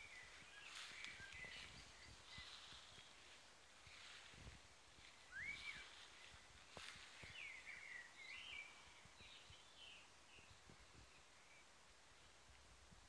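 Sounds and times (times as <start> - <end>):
songbird whistling: 5.3 - 6.0.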